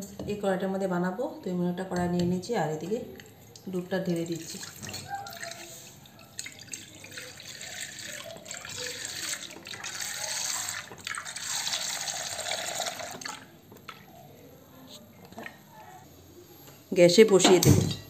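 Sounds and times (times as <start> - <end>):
milk pouring into metal pan: 3.2 - 13.6.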